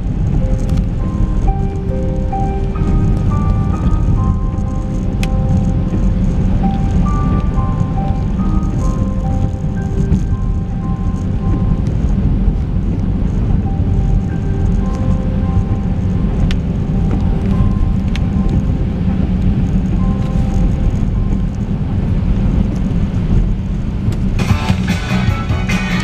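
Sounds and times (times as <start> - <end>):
car road and engine rumble: 0.0 - 26.0
faint held music notes: 0.0 - 26.0
strummed guitar music: 24.4 - 26.0.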